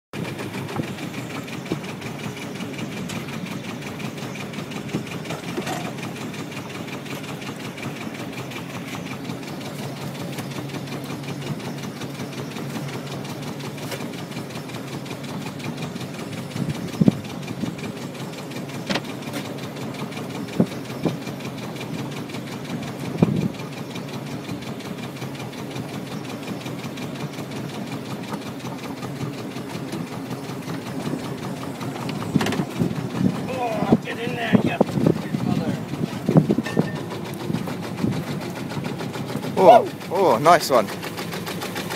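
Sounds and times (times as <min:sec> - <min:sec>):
boat engine running: 0:00.1 - 0:41.9.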